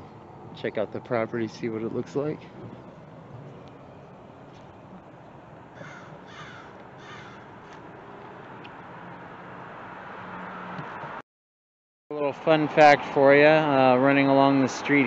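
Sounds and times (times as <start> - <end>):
outdoor background noise: 0.0 - 11.2
bird calling: 5.7 - 7.8.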